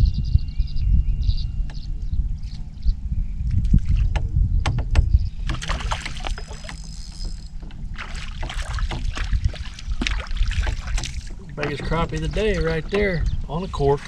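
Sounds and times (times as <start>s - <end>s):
wind buffeting microphone: 0.0s - 14.0s
water lapping against hull: 3.4s - 14.0s
fish splashing at surface: 5.5s - 11.4s.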